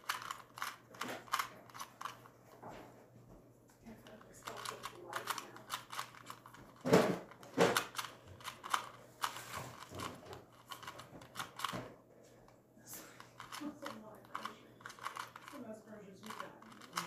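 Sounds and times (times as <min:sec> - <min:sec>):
plastic puzzle cube clicking: 0:00.0 - 0:02.2, 0:04.0 - 0:11.8, 0:13.4 - 0:15.6, 0:16.2 - 0:17.0.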